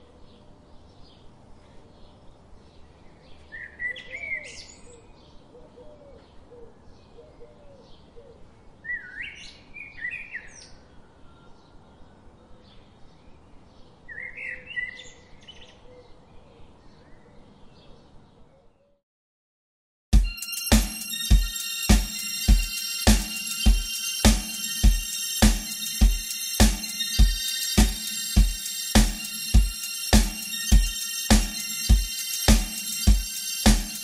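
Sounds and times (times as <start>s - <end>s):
bird song phrases: 0.0s - 19.0s.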